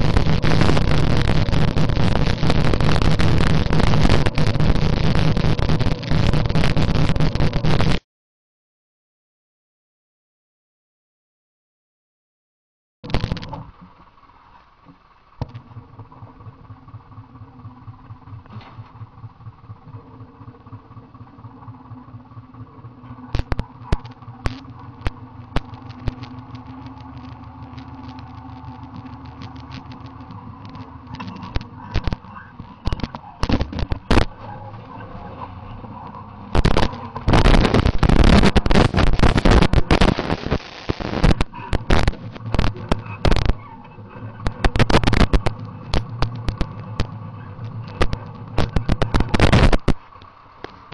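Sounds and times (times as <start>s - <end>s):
tractor diesel engine pulsing: 0.0s - 7.8s, 13.6s - 40.3s, 41.3s - 50.9s
microphone crackling noise: 0.0s - 8.0s, 13.0s - 13.9s, 22.0s - 50.9s.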